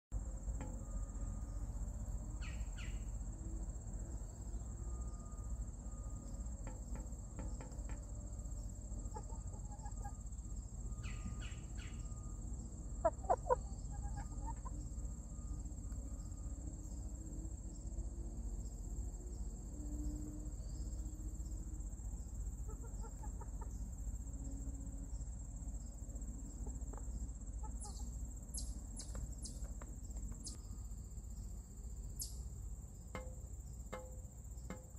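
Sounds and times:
insects chirping: 0.2s - 34.9s
hens clucking: 9.0s - 10.2s, 13.0s - 14.8s, 22.6s - 23.8s, 26.6s - 28.1s.

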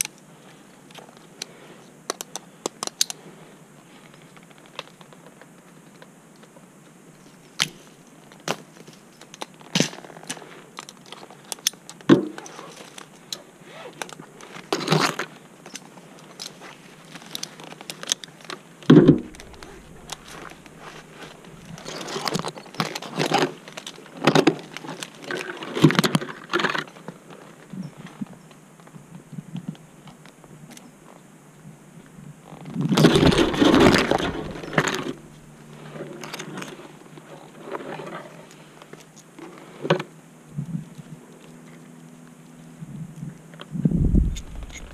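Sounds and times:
clothing and leaves rustling: 12.4s - 31.2s, 32.0s - 44.9s
metallic clinks of carabiners: 44.3s - 44.9s.

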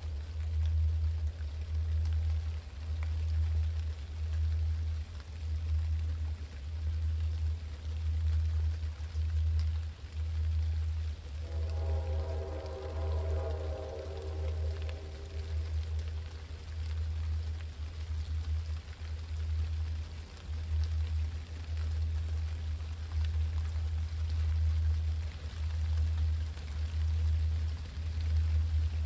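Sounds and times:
falling rain: 0.0s - 29.0s
raindrops ticking: 0.0s - 29.0s
diesel locomotives rumbling: 11.3s - 17.2s.

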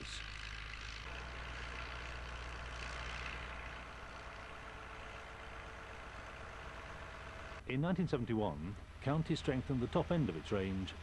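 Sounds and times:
tractor engine droning: 0.0s - 11.0s.

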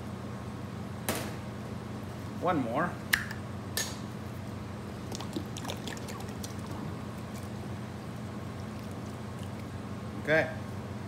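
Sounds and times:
steady low hum: 0.0s - 11.0s
juice pouring into plastic tub: 5.0s - 7.6s.

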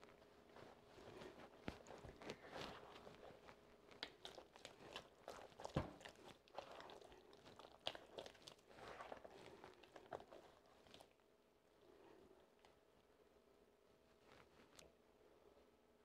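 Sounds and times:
dough squishing: 0.0s - 12.8s.

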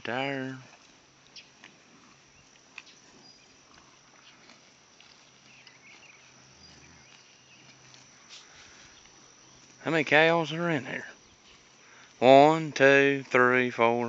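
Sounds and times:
faint high chirps: 5.2s - 12.4s.

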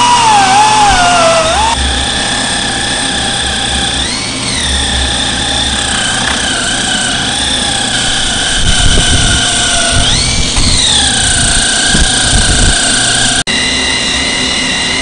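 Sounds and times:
air die grinder whining: 0.0s - 15.0s.

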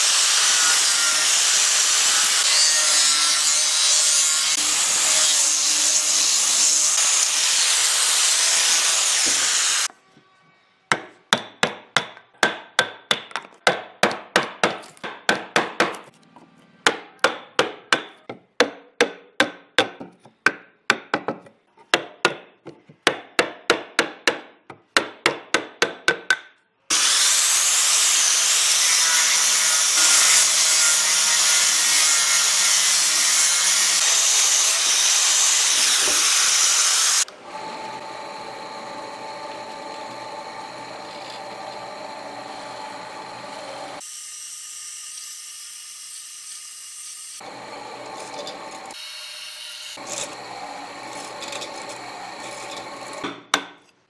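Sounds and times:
power tool on wood: 0.0s - 9.9s, 26.9s - 53.5s.

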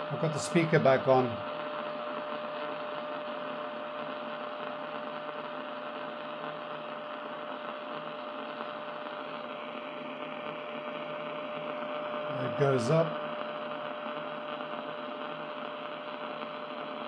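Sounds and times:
radio loudspeaker hiss: 0.0s - 17.0s.

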